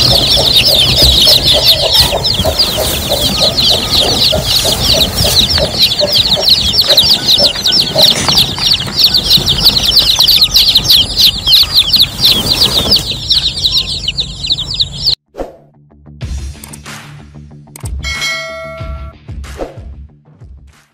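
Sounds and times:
chicks peeping: 0.0s - 15.2s
hen clucking: 0.0s - 15.2s.

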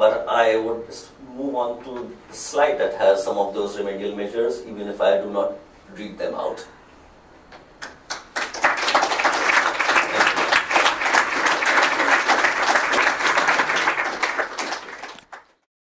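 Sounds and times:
audience applauding: 7.8s - 15.6s.

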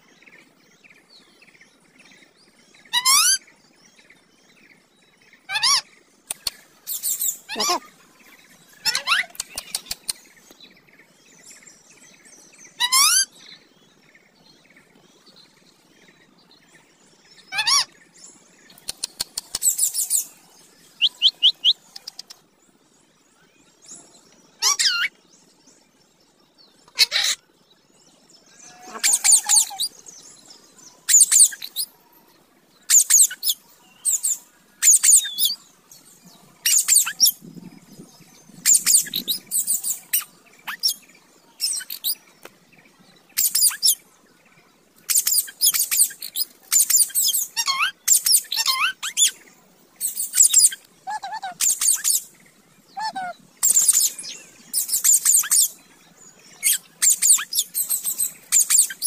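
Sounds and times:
parakeets chirping and squawking: 6.9s - 7.9s, 8.8s - 9.9s, 27.0s - 27.4s, 28.7s - 29.9s, 45.1s - 49.3s, 53.0s - 54.1s.

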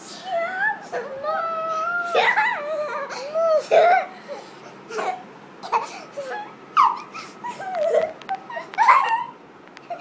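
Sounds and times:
child squealing and crying: 6.2s - 9.4s.

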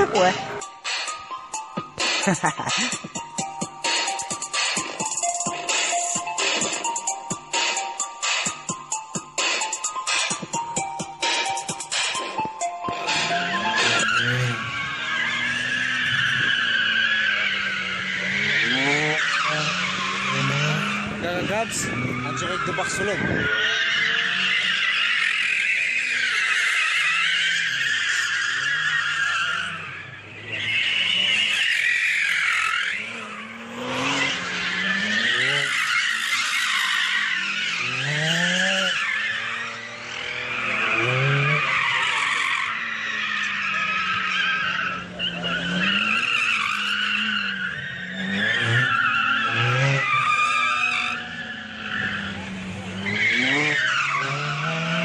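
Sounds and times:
car engine revving: 0.0s - 55.0s
car tyres squealing: 0.0s - 55.0s.

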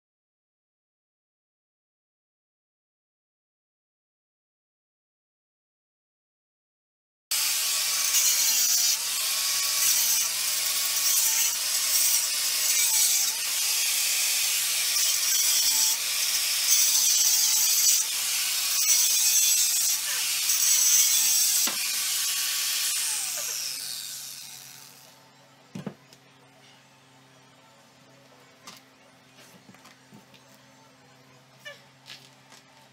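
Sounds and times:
angle grinder cutting tile: 7.3s - 25.2s.

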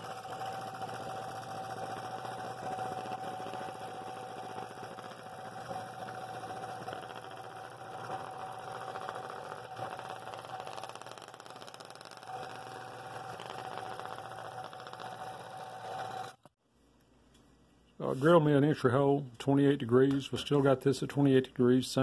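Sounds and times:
scroll saw buzzing: 0.0s - 16.6s.

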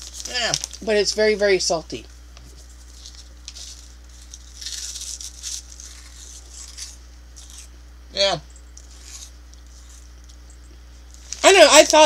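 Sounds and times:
crunching snacks: 0.0s - 1.1s, 2.8s - 7.8s, 8.7s - 10.4s
steady low hum: 0.0s - 12.0s.

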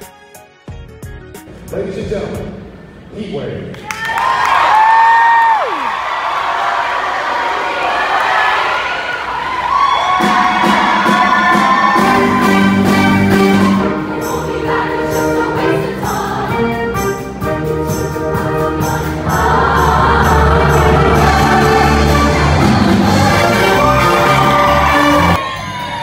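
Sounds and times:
choir singing: 10.2s - 25.4s
instrumental accompaniment: 10.2s - 25.5s.

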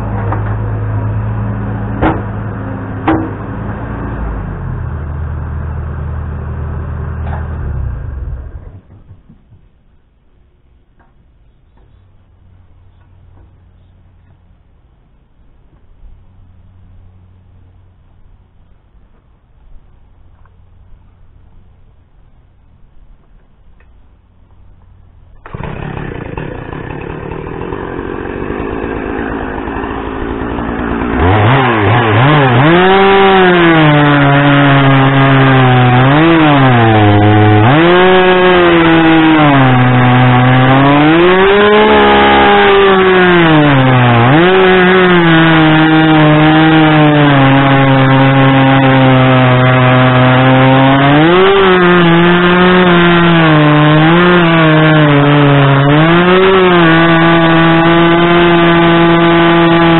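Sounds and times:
chainsaw cutting log: 2.0s - 4.6s, 25.4s - 59.9s.

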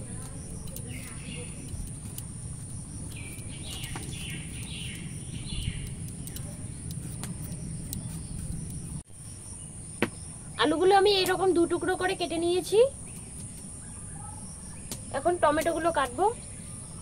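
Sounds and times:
birds chirping: 0.0s - 17.0s
knife scraping potato skin: 0.1s - 9.0s.

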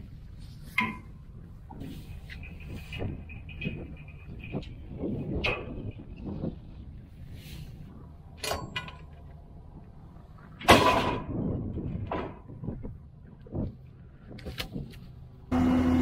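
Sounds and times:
wooden posts knocking and thudding: 10.6s - 13.8s.

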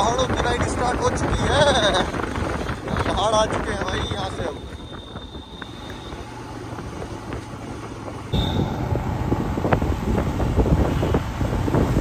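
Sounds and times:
wind rushing over microphone: 0.0s - 5.7s, 8.4s - 12.0s
motorcycle engine running: 0.8s - 12.0s.

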